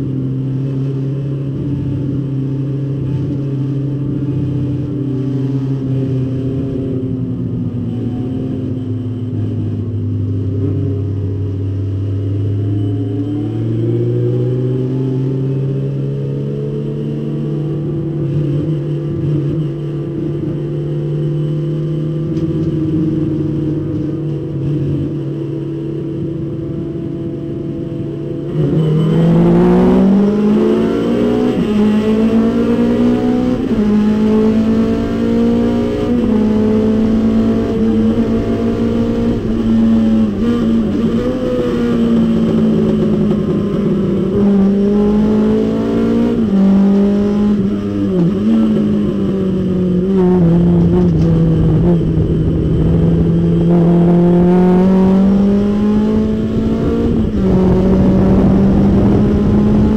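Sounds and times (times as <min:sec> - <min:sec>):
race car engine revving: 0:12.0 - 0:59.9.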